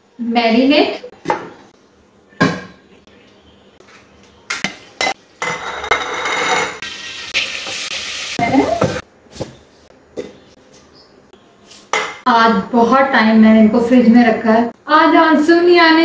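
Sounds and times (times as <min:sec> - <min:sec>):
chicken sizzling in hot pot: 0:05.5 - 0:09.5.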